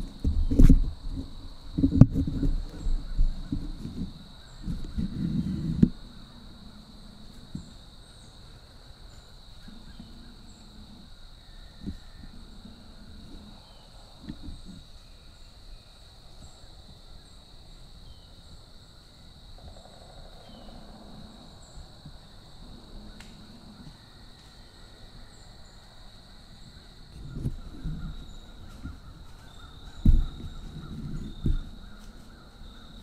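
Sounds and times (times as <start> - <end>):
high-pitched whine: 19.5 - 33.0
soft rustles: 27.1 - 33.0.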